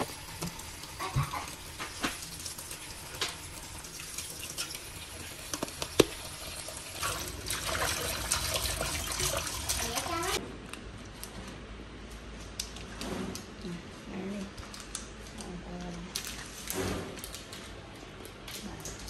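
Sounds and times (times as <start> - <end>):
tap running into metal pot: 5.5 - 6.2
water splashing: 5.9 - 10.4.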